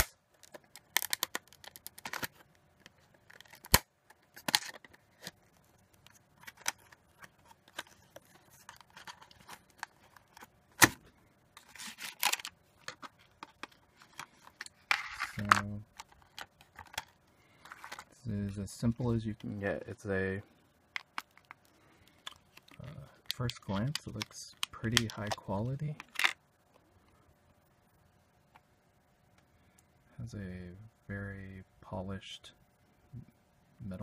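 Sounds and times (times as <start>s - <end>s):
packaging clicks and crinkles: 0.0s - 11.0s, 11.6s - 18.2s
plastic rustling: 0.4s - 18.2s.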